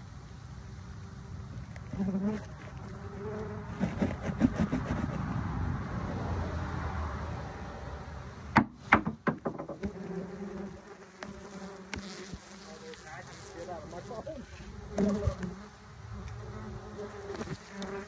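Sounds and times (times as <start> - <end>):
wasps buzzing: 0.0 - 5.2, 8.8 - 18.0
sharp knocks: 8.6 - 10.0.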